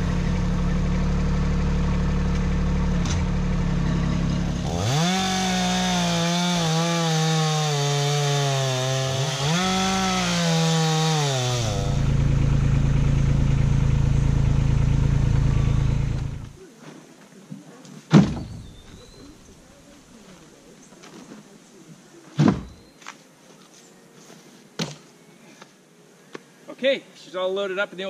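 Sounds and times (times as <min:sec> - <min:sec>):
tractor diesel engine idling: 0:00.0 - 0:04.7, 0:11.7 - 0:16.6
chainsaw cutting log: 0:04.3 - 0:16.6.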